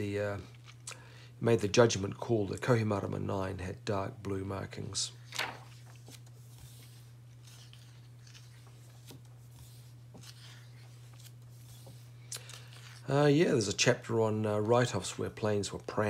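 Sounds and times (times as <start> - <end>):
low electrical hum: 0.0 - 16.0
book pages rustling: 5.2 - 13.1.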